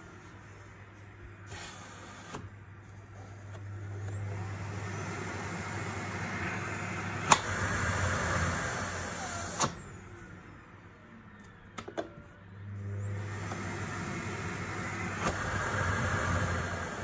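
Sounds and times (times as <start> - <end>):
vacuum cleaner motor whining: 1.4 - 10.6, 12.6 - 17.0.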